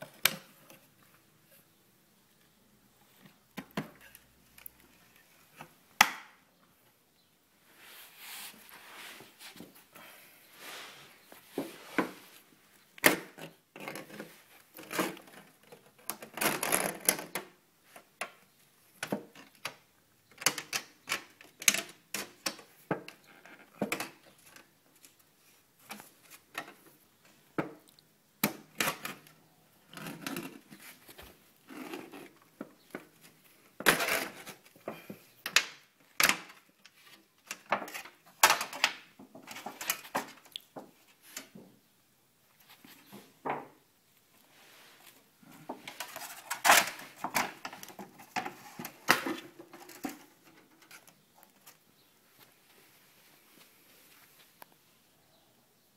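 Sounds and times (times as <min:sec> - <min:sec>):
sheet metal crinkling and tearing: 0:45.9 - 0:51.8.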